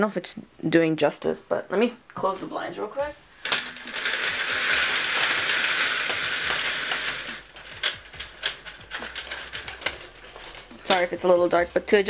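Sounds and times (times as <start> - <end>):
blinds clicking and tapping: 3.0 - 12.0
window blinds closing rush: 3.2 - 10.3.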